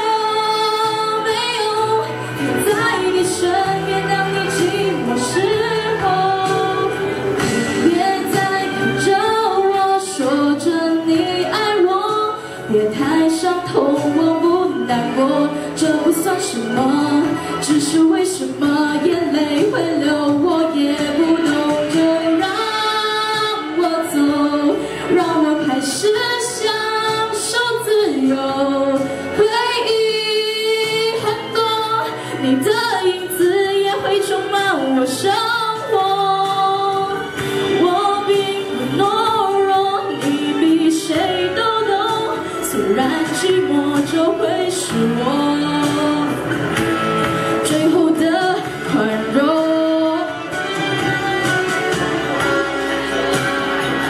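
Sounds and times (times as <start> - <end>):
girl singing into microphone: 0.0 - 46.6, 47.5 - 50.6
instrumental accompaniment: 0.0 - 54.0.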